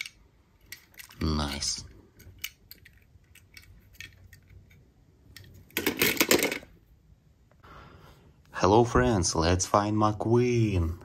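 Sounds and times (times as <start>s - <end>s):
toy cars clicking: 0.0s - 6.6s
toy cars clattering: 0.0s - 6.8s.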